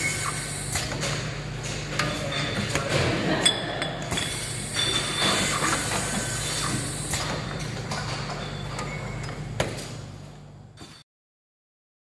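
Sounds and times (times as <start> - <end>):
machine whirring and clicking: 0.0 - 3.0, 4.0 - 10.0.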